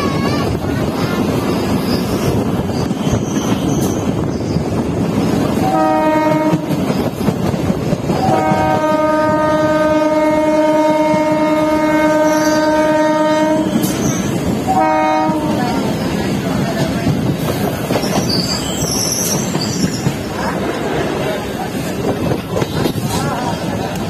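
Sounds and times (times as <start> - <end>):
train rumble: 0.0 - 24.0
wind: 0.0 - 24.0
train horn blasts: 5.6 - 6.8, 8.2 - 13.9, 14.7 - 15.8.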